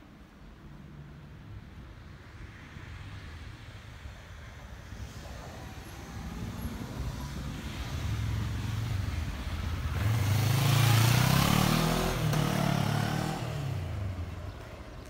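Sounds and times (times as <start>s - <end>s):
motorcycle engine passing by: 9.9s - 14.7s.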